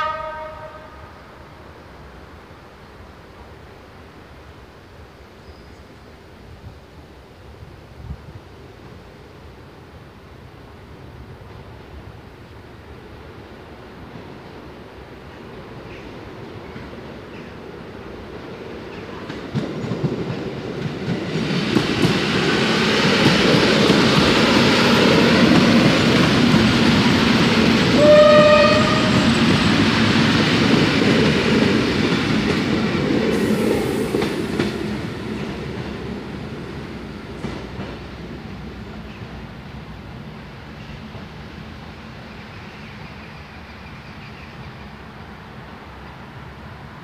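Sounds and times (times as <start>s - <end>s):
train horn: 0.0s - 1.6s, 27.9s - 29.5s
train wheels rumbling on rails: 6.5s - 47.0s.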